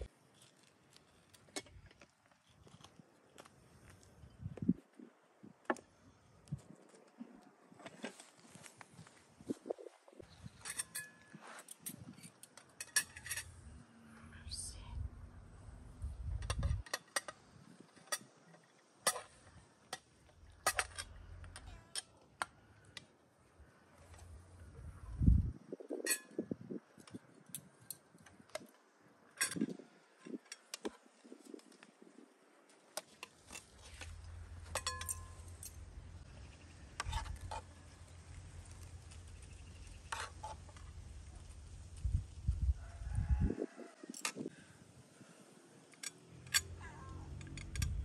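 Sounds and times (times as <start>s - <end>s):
dishes clinking: 34.7s - 35.4s.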